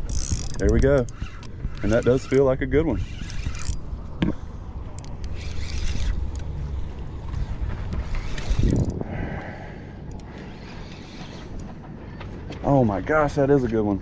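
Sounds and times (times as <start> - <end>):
wind rumbling on microphone: 0.0 - 9.8.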